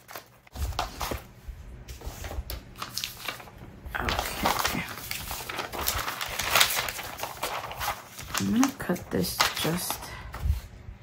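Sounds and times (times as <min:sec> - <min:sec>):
paper rustling and crinkling: 0:00.0 - 0:10.8.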